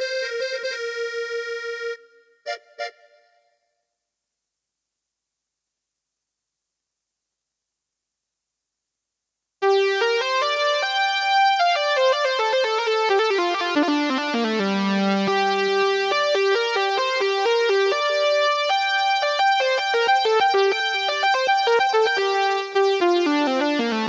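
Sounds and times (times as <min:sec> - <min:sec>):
synthesizer keyboard melody: 0:09.6 - 0:24.0.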